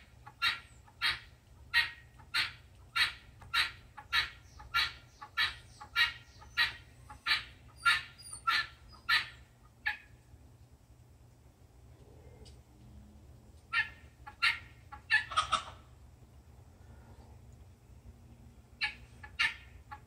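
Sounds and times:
guinea hens calling: 0.0 - 10.4, 13.6 - 16.4, 18.7 - 20.0.

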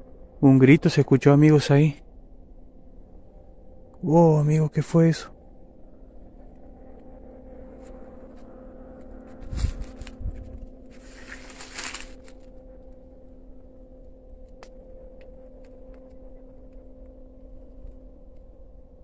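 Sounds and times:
faint steady hum: 0.0 - 19.0
rustling of leaves and branches: 6.4 - 18.6
twig snaps and crackles: 7.8 - 13.0, 14.0 - 17.2.

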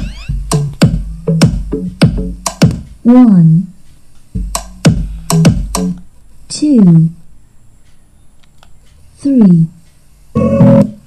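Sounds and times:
electronic music with drum-machine beat: 0.0 - 3.0, 4.4 - 6.0, 10.4 - 11.0.

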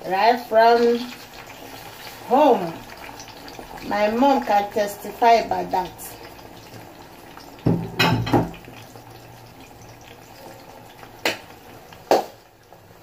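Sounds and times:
dishes clattering: 7.6 - 8.7.

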